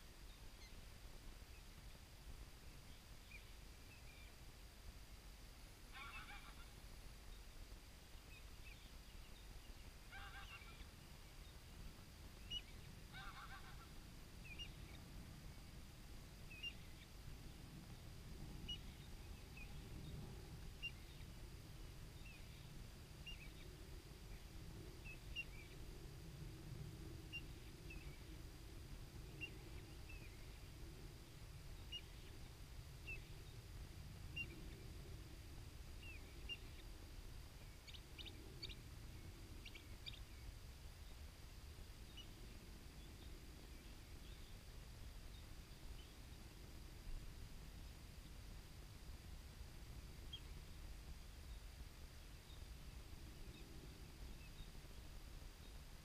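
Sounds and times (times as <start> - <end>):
waterfowl calling: 5.9 - 6.8, 10.1 - 10.9, 12.5 - 14.0
steady low rumble: 7.1 - 56.0
small bird chirping: 12.4 - 13.8, 14.4 - 15.7, 16.5 - 17.2, 18.6 - 21.4, 22.2 - 25.8, 31.7 - 33.6, 34.3 - 34.8, 36.0 - 36.9, 37.6 - 41.2, 42.0 - 44.7, 50.2 - 50.6.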